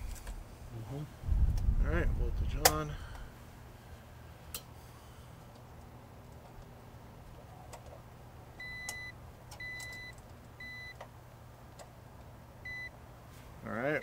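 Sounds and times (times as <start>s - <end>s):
low steady hum: 0.0s - 14.0s
clamp meter beeping: 8.6s - 11.0s, 12.6s - 12.9s.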